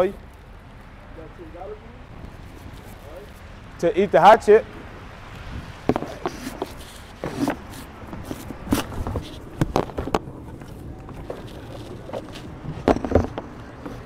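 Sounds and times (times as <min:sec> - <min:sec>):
rustles and knocks of handling: 0:05.4 - 0:14.0.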